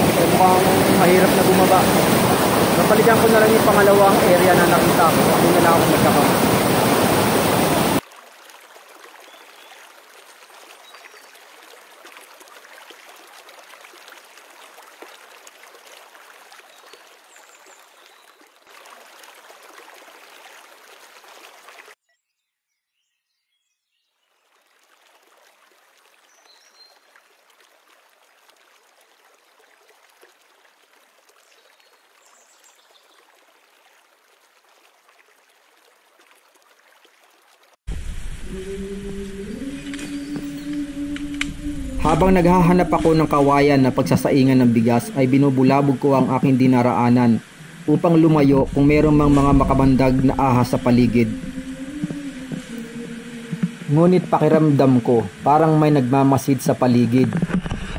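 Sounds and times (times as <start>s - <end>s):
river flowing over rocks: 0.0s - 10.8s, 37.9s - 57.9s.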